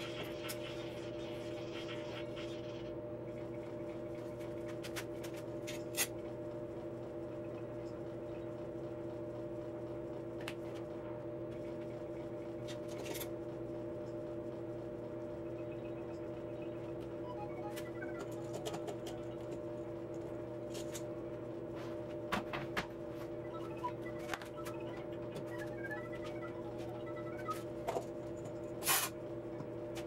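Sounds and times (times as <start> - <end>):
steady electrical hum: 0.0 - 30.0.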